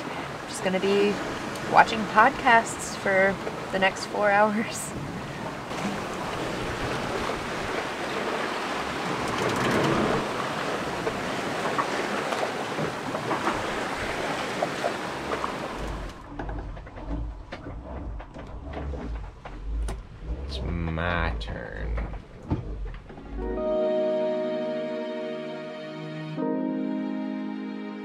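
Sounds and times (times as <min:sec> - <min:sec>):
wind and sea rushing past boat: 0:00.0 - 0:25.0
low rumble: 0:15.8 - 0:23.6.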